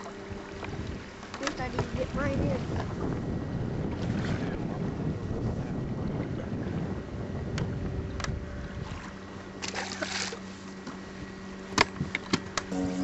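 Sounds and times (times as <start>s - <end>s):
wind buffeting microphone: 0.1s - 9.6s.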